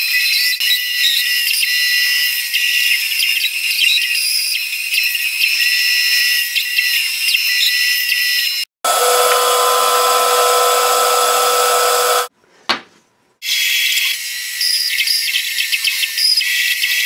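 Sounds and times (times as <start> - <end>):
bandsaw cutting wood: 8.9 - 12.3.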